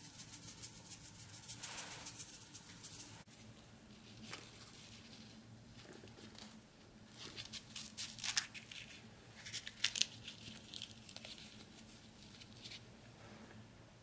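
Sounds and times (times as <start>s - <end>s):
pastry crackling and crunching: 4.1s - 12.8s.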